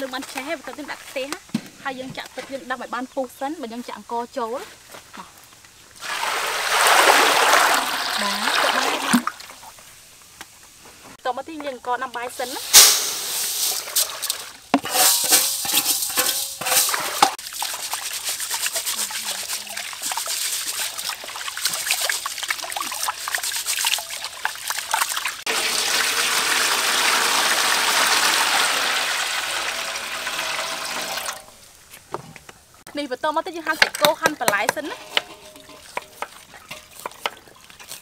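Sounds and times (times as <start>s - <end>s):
rice swished in water: 6.0s - 9.3s, 12.4s - 25.5s
water pouring stream: 6.0s - 9.8s, 12.4s - 31.6s.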